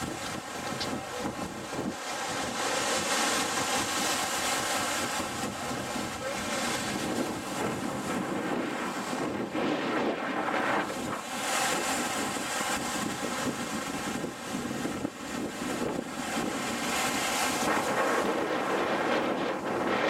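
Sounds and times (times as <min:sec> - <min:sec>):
surf breaking over rocks: 0:00.0 - 0:20.0
wind buffeting microphone: 0:00.0 - 0:20.0.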